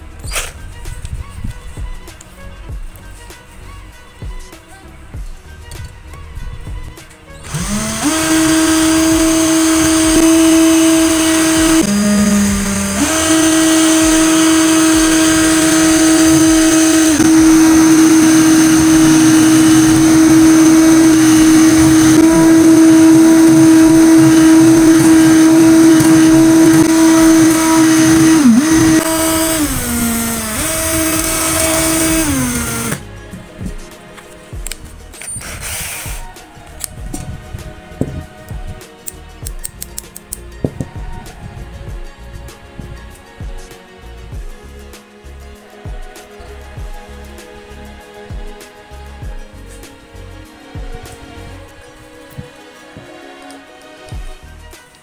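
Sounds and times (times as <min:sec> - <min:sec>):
cordless drill motor spinning: 0:07.4 - 0:33.0, 0:35.3 - 0:36.3
hacksaw blade scraping metal: 0:35.2 - 0:36.2.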